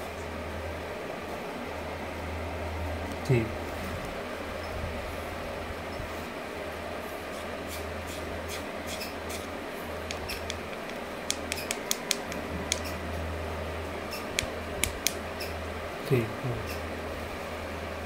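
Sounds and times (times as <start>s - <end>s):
steady low hum: 0.0s - 18.0s
small stone clicks and taps: 10.1s - 12.9s.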